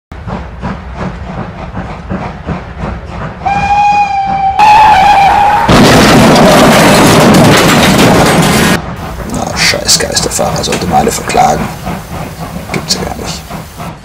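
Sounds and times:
steam locomotive chuffing: 0:00.1 - 0:14.0
steam whistle: 0:03.4 - 0:05.7
loud rushing noise: 0:05.5 - 0:14.0.

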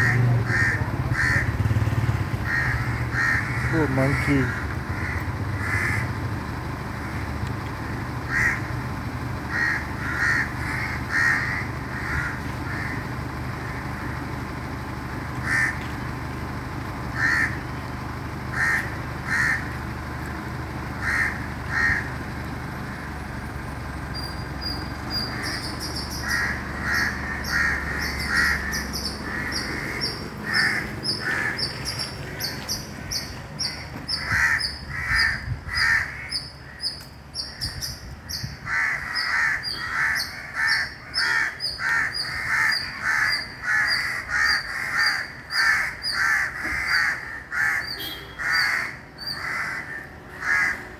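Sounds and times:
crows cawing: 0:00.0 - 0:01.8, 0:02.4 - 0:06.2, 0:06.9 - 0:07.4, 0:08.2 - 0:08.8, 0:09.4 - 0:14.2, 0:15.4 - 0:15.9, 0:17.1 - 0:17.7, 0:18.5 - 0:19.8, 0:21.0 - 0:22.2, 0:25.1 - 0:50.9.

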